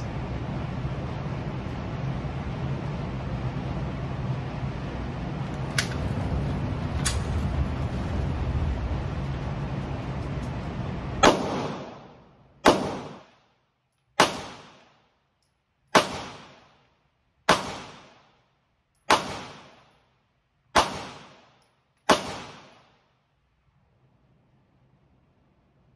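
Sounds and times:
handgun shots indoors: 11.2 - 13.3, 14.1 - 14.9, 15.9 - 16.6, 19.0 - 20.0, 20.7 - 22.9.

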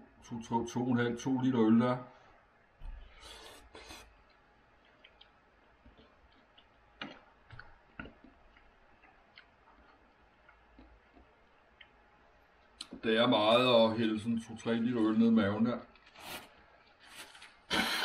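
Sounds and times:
soft slurping: 3.1 - 7.2, 16.1 - 18.0.

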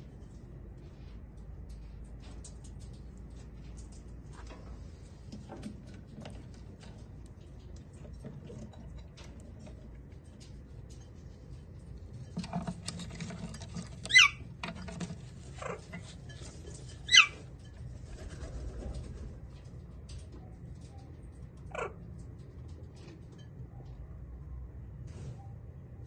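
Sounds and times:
parakeet calls: 17.1 - 17.4.

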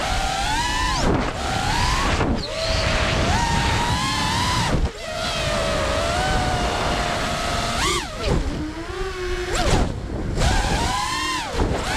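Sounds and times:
drone motors whining: 0.0 - 11.9
wind rush: 0.9 - 8.7.

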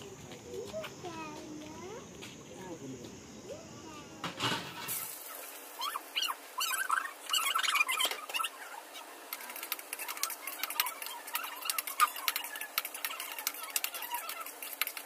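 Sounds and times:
high squeaky calls: 4.8 - 15.0.

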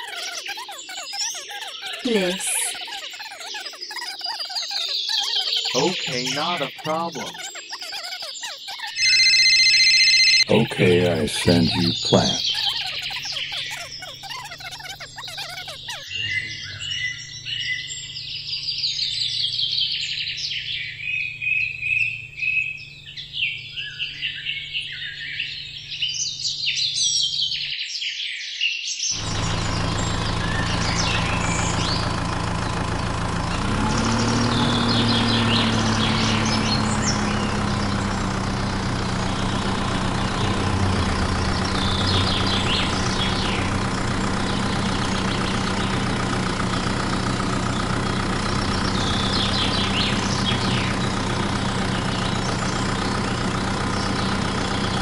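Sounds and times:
birds chirping: 0.0 - 55.0
engine idling: 5.0 - 7.4, 9.0 - 27.6, 29.2 - 55.0.

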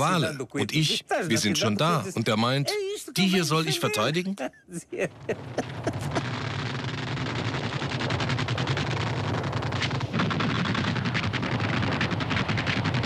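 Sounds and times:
low rumble: 5.1 - 13.0
rapid weapons fire: 6.0 - 13.0.

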